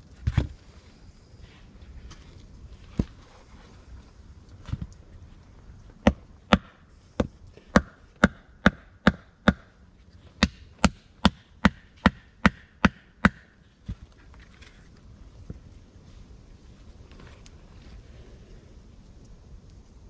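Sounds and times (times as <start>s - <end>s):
wood chopping strikes: 10.4s - 13.5s.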